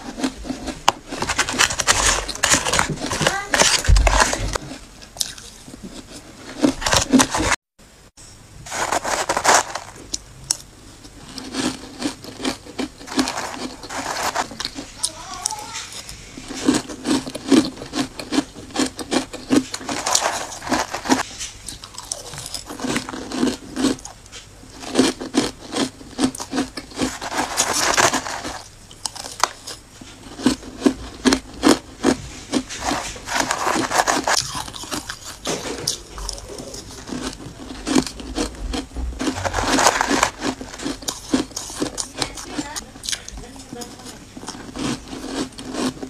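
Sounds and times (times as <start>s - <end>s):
crushed ice crunching: 0.2s - 5.4s, 8.7s - 10.2s, 11.2s - 24.1s, 24.7s - 42.8s, 43.5s - 46.0s
metal spoon scraping ice: 8.7s - 10.0s, 11.2s - 21.3s, 24.8s - 30.7s, 32.5s - 38.6s, 39.2s - 42.8s.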